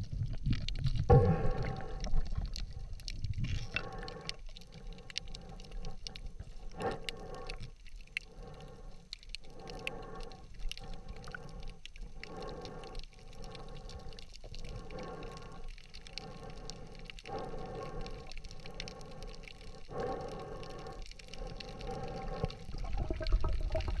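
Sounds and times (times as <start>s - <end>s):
muffled underwater wash: 0.0s - 24.0s
sharp underwater clicks: 0.0s - 24.0s.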